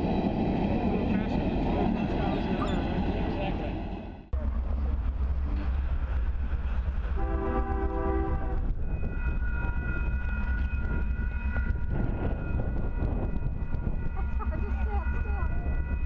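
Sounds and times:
low rumble: 0.0s - 16.0s
train horn blasts: 7.2s - 8.8s.

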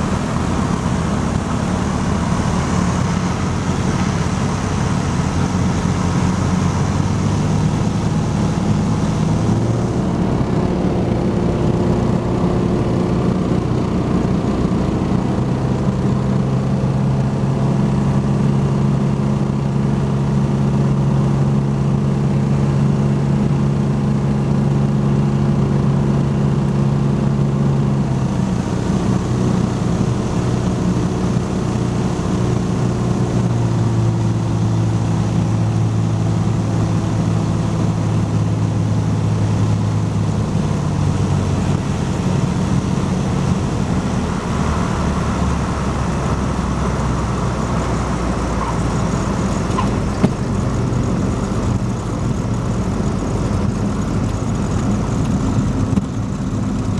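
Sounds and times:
aircraft engine and propeller droning: 0.0s - 56.9s.

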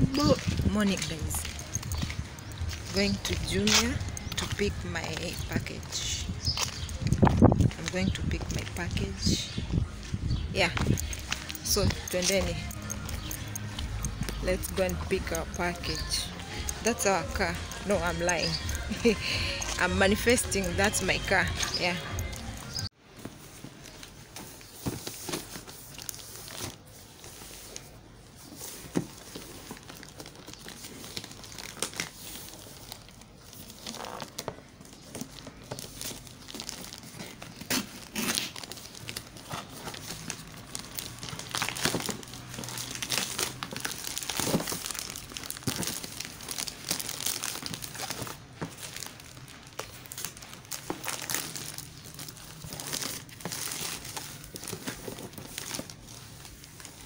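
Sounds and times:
plastic bag crinkling and tearing: 29.1s - 57.0s.

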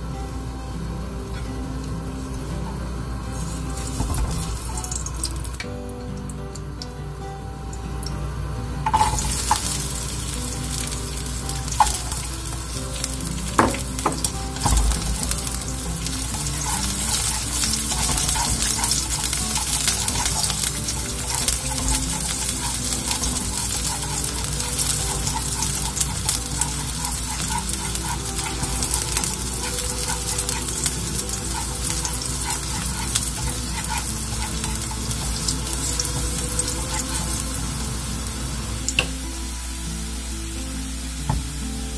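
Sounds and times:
garlic sizzling in oil: 0.0s - 41.9s
chopsticks scraping pan: 13.7s - 37.6s.

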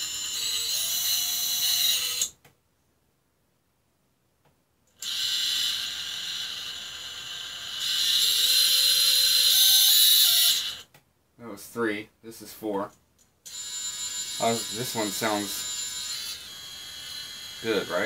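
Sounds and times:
drone motors whining: 0.0s - 2.3s, 5.0s - 10.8s, 13.5s - 18.0s.

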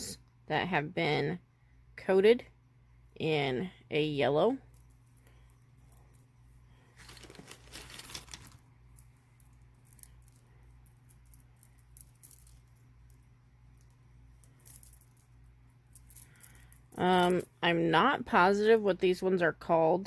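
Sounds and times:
faint low hum: 0.0s - 20.0s
beads clicking and rattling: 4.6s - 17.6s.

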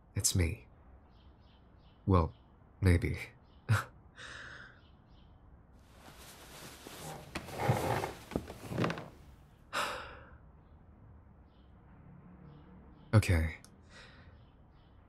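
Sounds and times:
rustling and shuffling: 5.9s - 9.4s.

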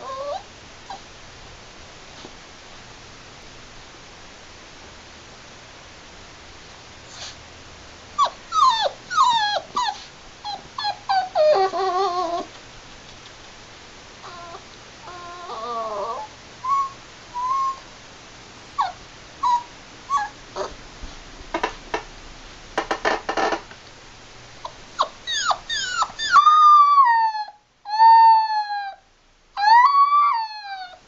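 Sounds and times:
puppy howling: 0.0s - 1.0s, 8.2s - 12.5s, 14.2s - 17.9s, 18.8s - 20.8s, 24.6s - 29.0s, 29.6s - 31.0s
puppy whimpering and yipping: 0.0s - 1.0s, 8.2s - 12.5s, 14.2s - 17.9s, 18.8s - 20.8s, 24.6s - 29.0s, 29.6s - 31.0s.

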